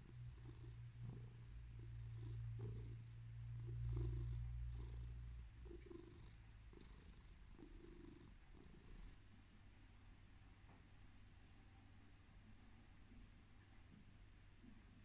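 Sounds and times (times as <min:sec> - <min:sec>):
cat purring: 0:00.0 - 0:09.5.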